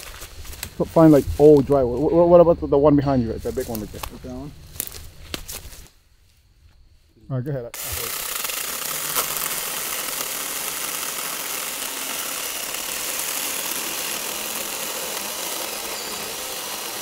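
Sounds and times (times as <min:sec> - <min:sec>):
electric chainsaw cutting log: 0:07.7 - 0:17.0.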